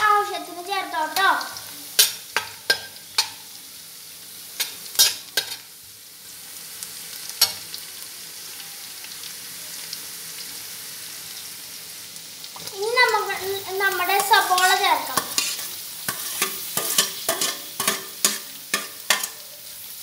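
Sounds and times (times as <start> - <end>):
food sizzling in oil: 0.0 - 20.0
metal spatula scraping pan: 14.0 - 19.5.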